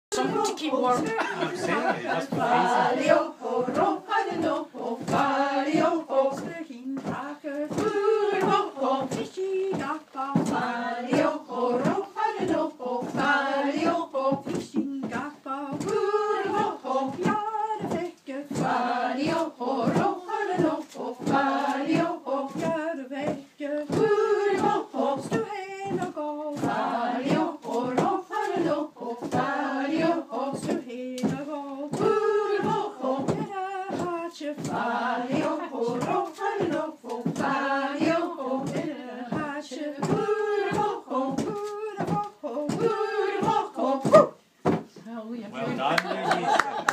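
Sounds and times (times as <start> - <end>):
women singing together: 0.1 - 46.9
cloth thudding on a table: 30.6 - 45.0.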